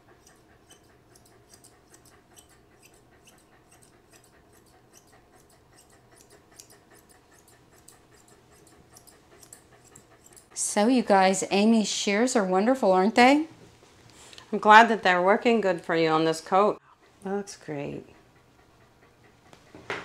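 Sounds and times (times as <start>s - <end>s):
shears snipping fur: 0.2s - 11.6s.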